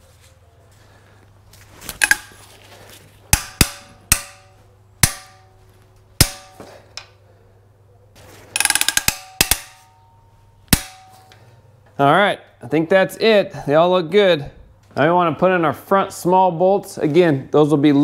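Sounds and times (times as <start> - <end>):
ratchet metallic clacks: 2.0 - 2.3, 8.6 - 9.9
rattle of ratchet clicks: 2.0 - 2.4, 8.6 - 9.8.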